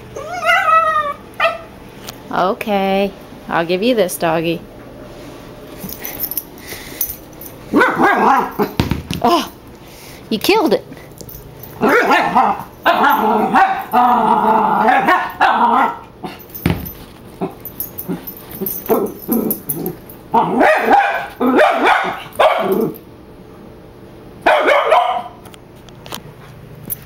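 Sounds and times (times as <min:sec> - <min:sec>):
puppy yipping: 0:00.2 - 0:01.7, 0:24.5 - 0:25.3
puppy barking: 0:00.4 - 0:01.7, 0:07.7 - 0:08.8, 0:11.8 - 0:14.0, 0:14.8 - 0:16.0, 0:20.4 - 0:23.0, 0:24.4 - 0:25.4.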